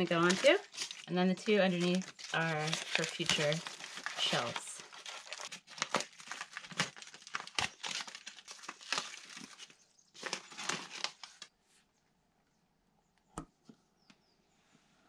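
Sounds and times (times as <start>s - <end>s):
wrapping crinkling and tearing: 0.0s - 11.5s.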